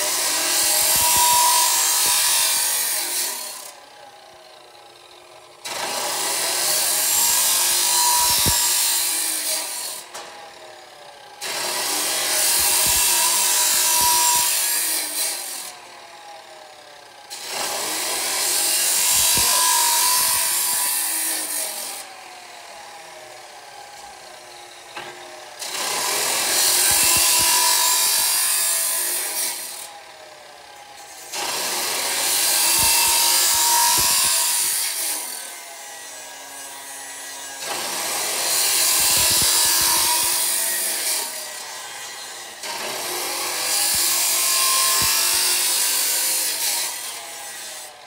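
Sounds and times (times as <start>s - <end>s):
saw grinding through steel: 0.0s - 48.0s
saw disc spinning: 25.9s - 28.9s, 38.0s - 41.6s.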